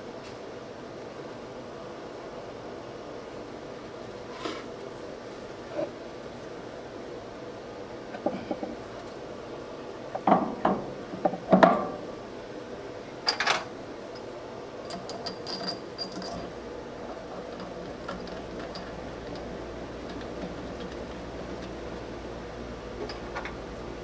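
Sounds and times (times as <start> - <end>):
light metallic clinks: 14.1 - 16.6, 17.4 - 21.0
metal tools clattering: 14.9 - 16.6, 17.4 - 19.5.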